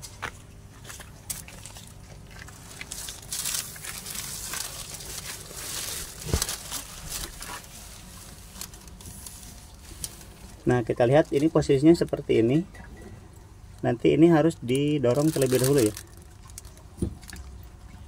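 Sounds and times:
plastic sheeting rustling: 0:00.8 - 0:12.4, 0:14.9 - 0:17.4.

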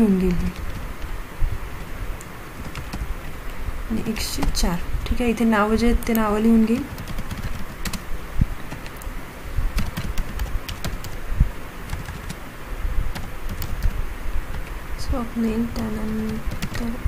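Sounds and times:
keyboard typing: 0:00.0 - 0:01.2, 0:01.8 - 0:03.1, 0:06.0 - 0:09.1, 0:09.8 - 0:11.2, 0:11.8 - 0:12.4, 0:13.1 - 0:14.8, 0:15.6 - 0:17.0.

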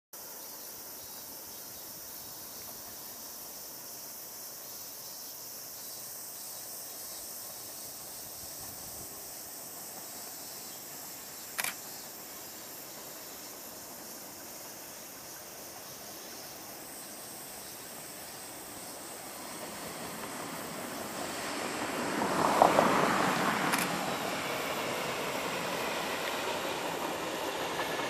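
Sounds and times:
insects chirring: 0:00.2 - 0:28.0
sharp click: 0:23.7 - 0:23.9.

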